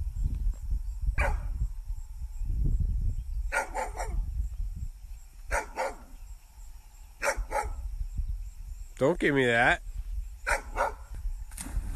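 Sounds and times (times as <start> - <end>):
dog barking: 1.2 - 1.5, 3.5 - 4.2, 5.5 - 6.1, 7.2 - 7.8, 10.4 - 11.1.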